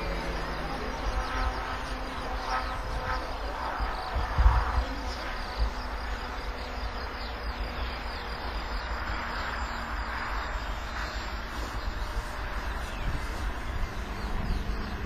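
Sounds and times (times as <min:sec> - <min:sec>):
low uneven rumble: 0:00.0 - 0:15.0
model aircraft buzzing whine: 0:00.0 - 0:15.0.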